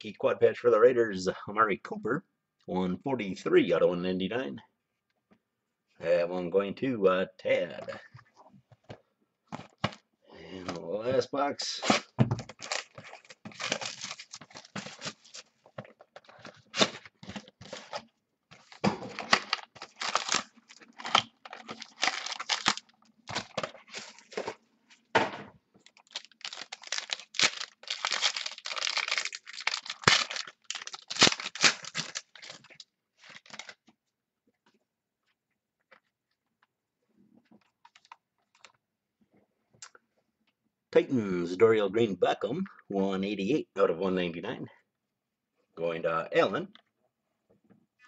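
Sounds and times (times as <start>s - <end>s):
foil and cardboard ripping: 11.8s - 15.5s, 18.6s - 24.5s, 26.0s - 33.7s.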